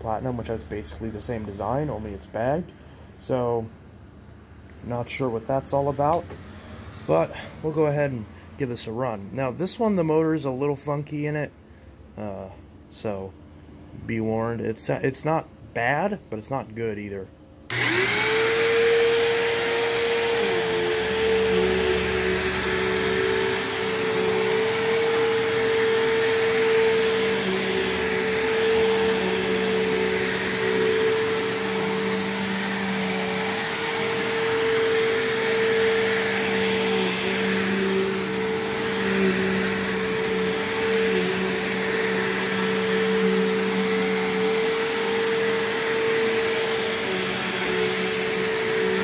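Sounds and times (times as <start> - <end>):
vacuum cleaner motor whining: 17.7 - 49.0.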